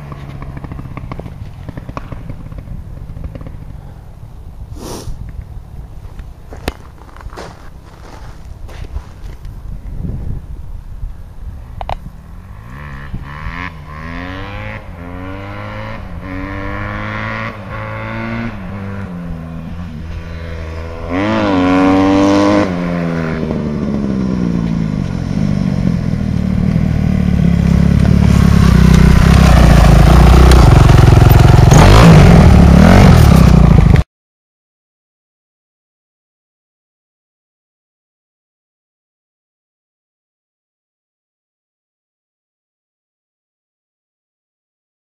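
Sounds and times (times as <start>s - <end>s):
dirt bike accelerating: 0.0s - 5.3s, 12.0s - 34.0s.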